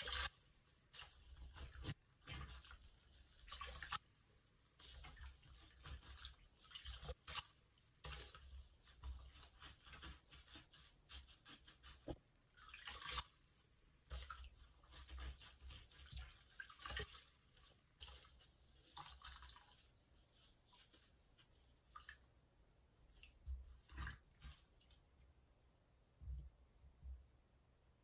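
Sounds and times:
water dripping: 0.0 - 10.8, 12.0 - 22.4, 23.0 - 26.5
sponge squishing: 0.0 - 25.6.

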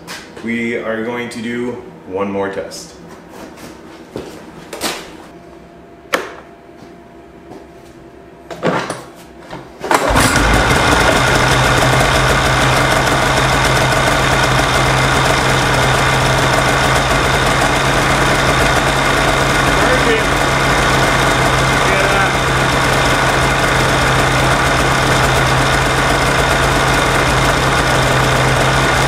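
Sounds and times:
snowmobile engine idling: 10.1 - 29.0.

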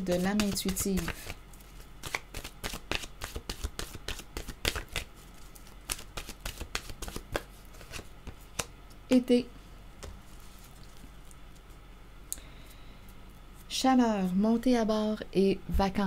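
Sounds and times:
cards being shuffled: 0.0 - 8.7.

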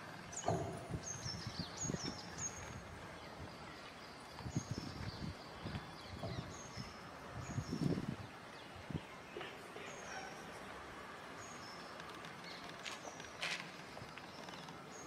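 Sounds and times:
birds chirping: 0.0 - 15.0
outdoor background noise: 0.0 - 15.0
low thumps: 0.4 - 2.2.

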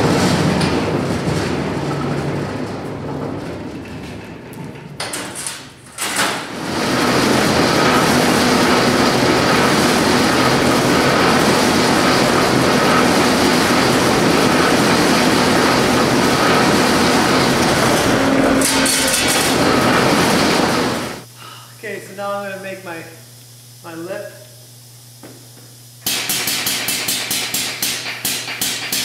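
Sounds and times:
power shear running: 0.0 - 21.3.

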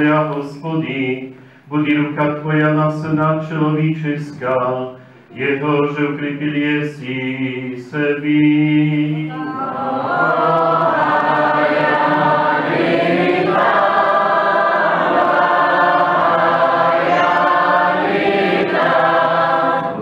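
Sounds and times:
choir chanting unaccompanied: 0.0 - 20.0.

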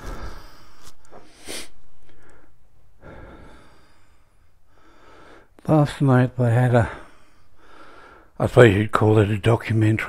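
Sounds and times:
man breathing noisily: 0.0 - 5.6, 6.8 - 8.4.

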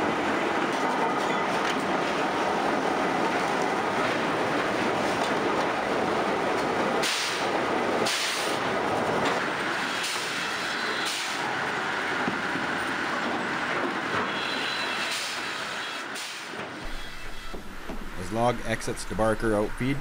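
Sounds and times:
log debarker clatter and rumble: 16.8 - 20.0.

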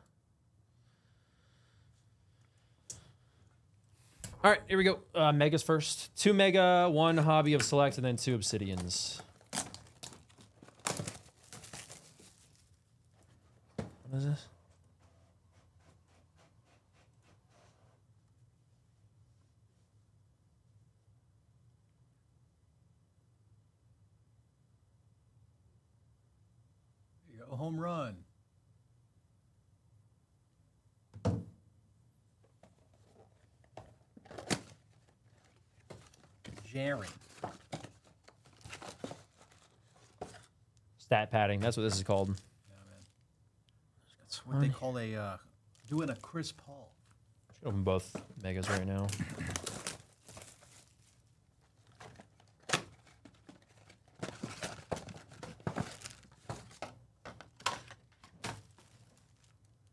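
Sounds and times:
foil card packs crinkling: 7.2 - 12.8, 34.2 - 40.5, 41.6 - 43.2, 45.8 - 46.5, 48.1 - 59.7.

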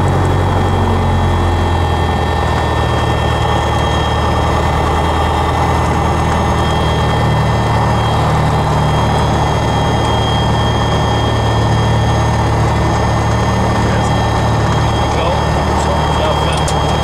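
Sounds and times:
propeller aircraft engine drone: 0.0 - 17.0.

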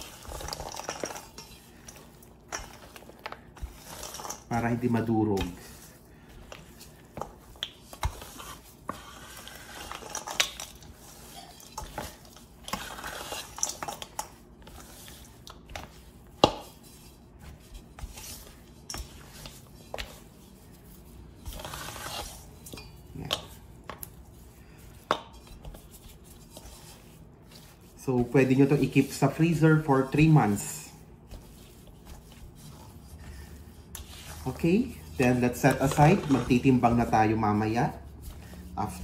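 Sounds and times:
spatula scraping metal bowl: 0.0 - 16.1, 16.7 - 23.7, 24.8 - 39.0.

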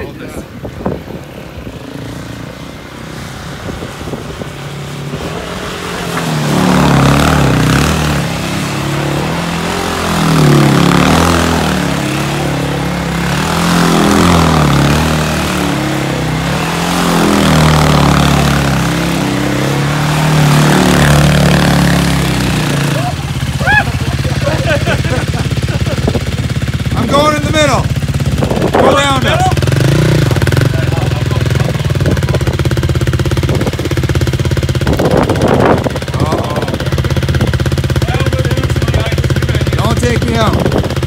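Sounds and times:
quad engine revving: 1.4 - 41.0.

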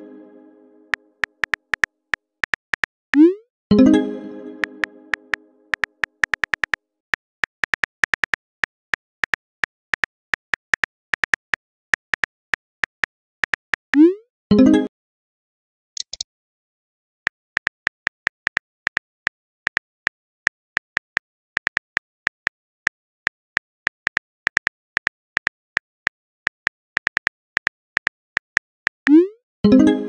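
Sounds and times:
phone keyboard typing clicks: 4.6 - 6.8, 7.4 - 8.4, 23.9 - 29.1.

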